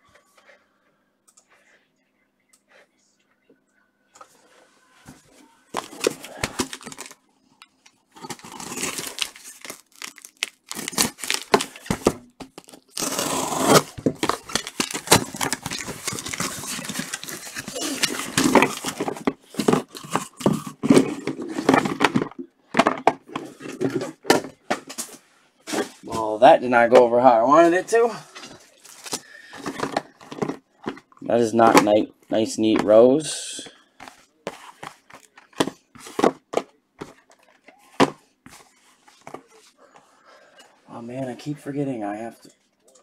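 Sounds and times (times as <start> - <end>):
cardboard rustling: 5.1 - 7.2, 8.2 - 26.4, 27.6 - 33.0, 34.0 - 39.8
cardboard ripping: 8.2 - 22.0
packing tape tearing: 8.2 - 22.0
boxes scraping and knocking: 8.2 - 26.4, 34.0 - 39.7.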